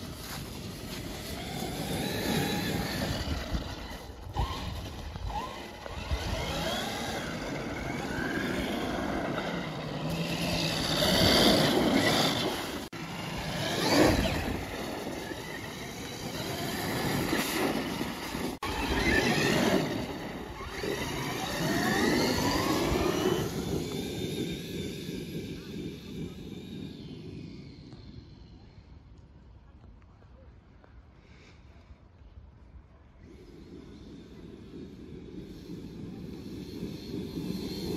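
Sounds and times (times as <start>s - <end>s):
electric motor whining: 1.0s - 28.3s.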